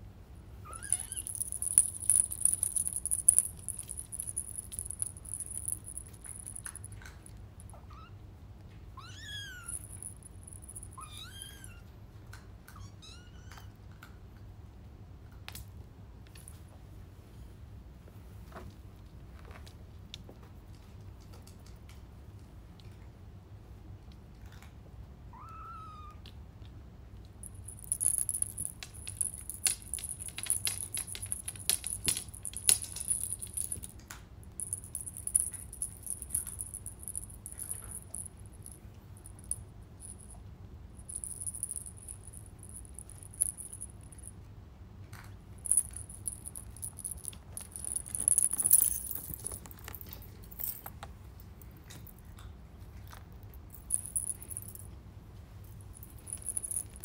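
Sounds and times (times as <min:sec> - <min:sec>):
small bell jingling: 0:00.7 - 0:07.7, 0:09.4 - 0:11.8, 0:27.4 - 0:33.9, 0:34.5 - 0:40.4, 0:41.0 - 0:44.3, 0:45.6 - 0:50.9, 0:53.6 - 0:54.9, 0:55.7 - 0:57.0
claws tapping on glass: 0:00.9 - 0:06.8, 0:27.4 - 0:33.9.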